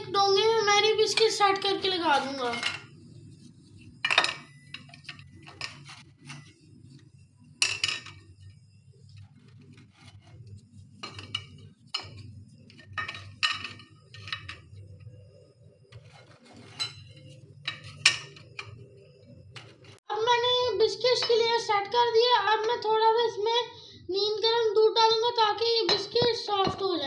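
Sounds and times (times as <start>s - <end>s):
low steady hum: 0.0s - 20.7s.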